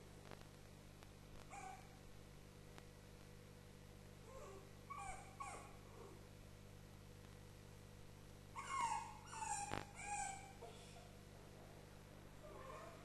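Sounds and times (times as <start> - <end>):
dog whimpering and yipping: 4.3 - 5.7, 8.6 - 10.7, 12.5 - 13.0.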